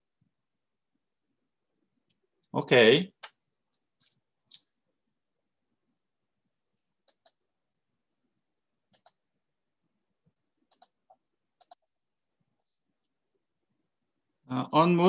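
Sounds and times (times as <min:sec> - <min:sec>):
computer mouse clicking: 0:07.0 - 0:07.4, 0:08.9 - 0:09.2, 0:10.7 - 0:11.9.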